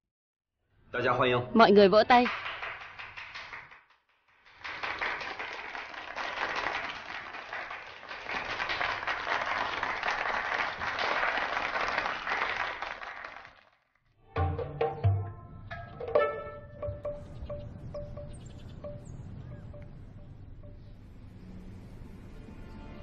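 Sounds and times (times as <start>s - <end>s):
people clapping in applause: 2.1s - 13.9s.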